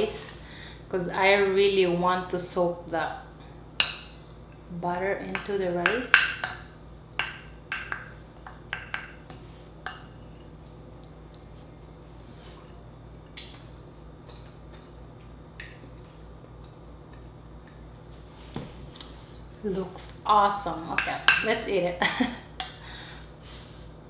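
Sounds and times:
low steady hum: 0.0 - 24.0
wooden spoon knocking on glass bowl: 7.2 - 9.2, 20.9 - 21.5.

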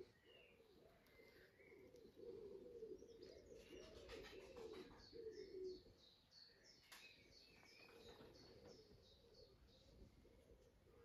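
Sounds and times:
pigeons cooing: 0.0 - 6.0
small birds chirping: 0.0 - 11.0.

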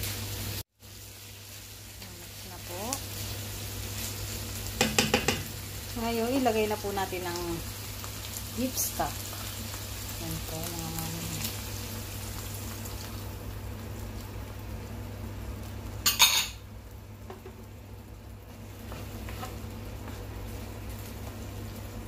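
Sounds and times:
faint sizzling hiss: 0.0 - 22.0
dish clattering against pan: 4.8 - 5.5, 16.0 - 16.6
wooden spatula tapping: 4.8 - 5.5.

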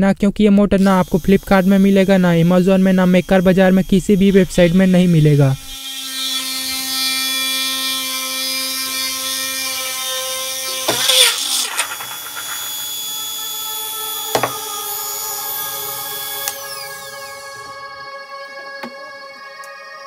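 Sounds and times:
motor whining: 0.8 - 19.8
chuck grinding clatter: 10.9 - 12.8.

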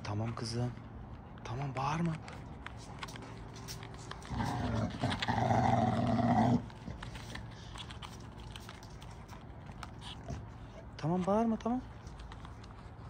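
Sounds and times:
dog giving low rough cry: 4.2 - 7.0.

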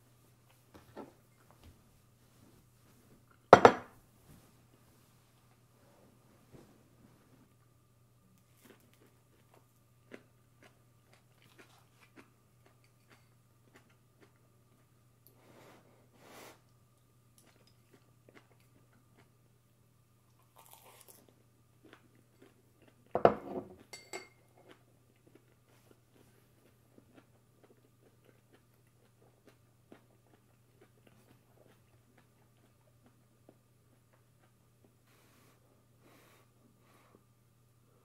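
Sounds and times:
faint low hum: 0.0 - 38.0
tableware clattering on table: 3.5 - 4.0, 23.2 - 24.4
chewing and mouth noises: 8.4 - 14.9, 17.4 - 19.4, 24.6 - 35.0.

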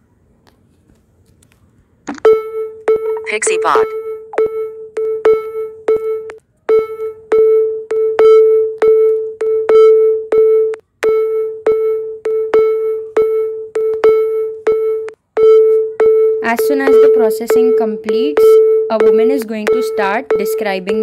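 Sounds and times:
looping electronic tone with clicks: 2.1 - 21.0.

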